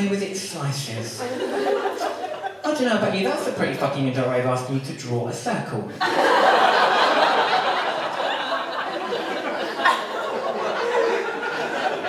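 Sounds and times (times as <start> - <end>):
audience laughing: 1.2 - 2.7, 6.0 - 12.0.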